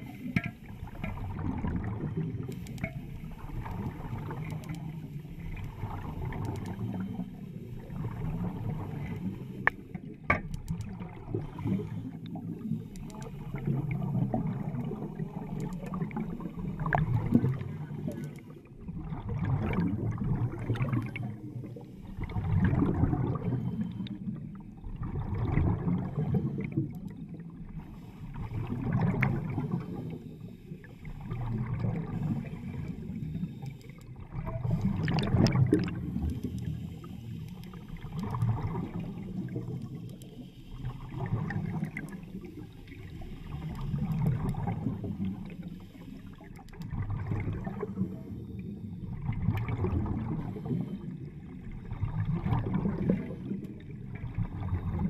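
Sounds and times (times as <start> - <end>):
air bubbling underwater: 34.4 - 36.3.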